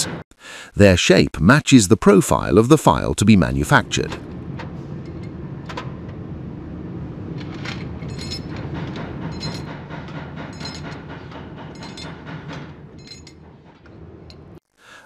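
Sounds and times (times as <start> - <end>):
machinery low rumble: 2.4 - 14.6
clanks of steel on steel: 7.4 - 14.6.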